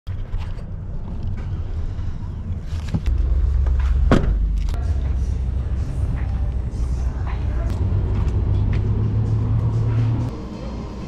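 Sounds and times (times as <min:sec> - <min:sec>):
low steady rumble: 0:00.1 - 0:11.0
truck door shutting: 0:03.8 - 0:04.6.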